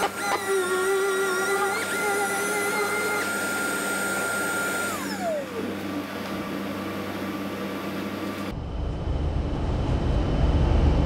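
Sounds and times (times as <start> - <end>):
orbital sander whining: 0.0 - 8.2
dust extraction vacuum rushing: 0.0 - 8.5.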